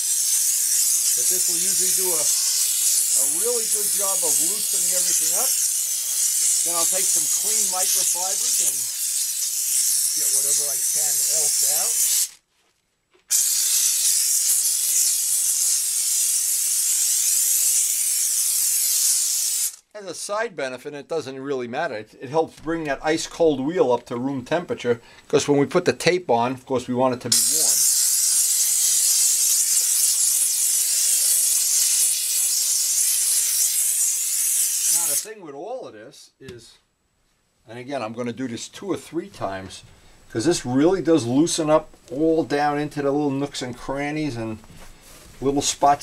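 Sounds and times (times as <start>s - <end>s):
steam cleaner jet hissing: 0.0s - 12.4s, 13.3s - 19.8s, 27.3s - 35.3s.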